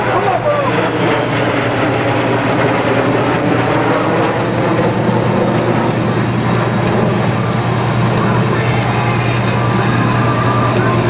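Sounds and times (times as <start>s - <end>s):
jet engines overhead: 0.0s - 11.0s.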